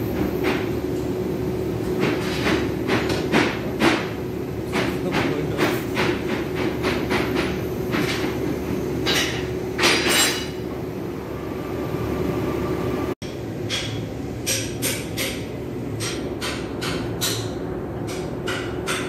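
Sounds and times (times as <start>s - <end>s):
machinery humming: 0.0s - 14.5s.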